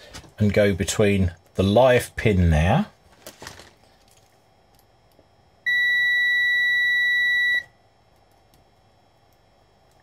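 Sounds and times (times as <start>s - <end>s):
multimeter high-pitched beep: 5.6s - 7.7s.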